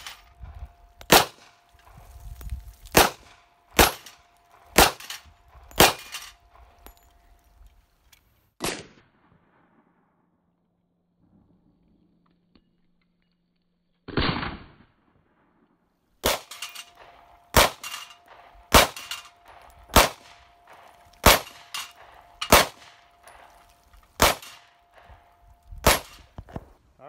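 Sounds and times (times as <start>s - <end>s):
pistol shots: 0.0s - 1.7s, 2.9s - 6.9s, 16.2s - 26.6s
steel targets clanging: 0.0s - 7.6s, 16.2s - 26.4s
slowed down pistol shot: 2.9s - 6.7s, 8.6s - 10.2s, 14.1s - 15.0s, 16.2s - 26.7s.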